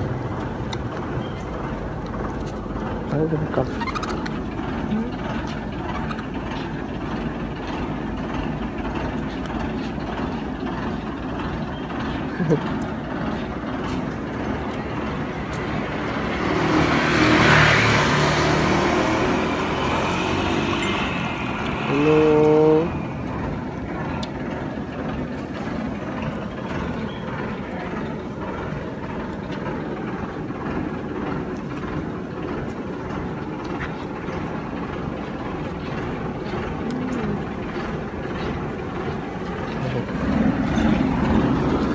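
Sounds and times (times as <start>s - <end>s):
street background noise: 0.0s - 41.9s
vehicle passing: 12.5s - 29.0s, 34.0s - 41.9s.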